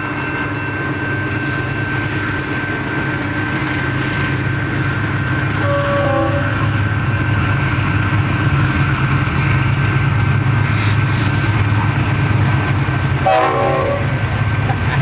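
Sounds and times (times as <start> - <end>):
diesel locomotive engines rumbling: 0.0 - 15.0.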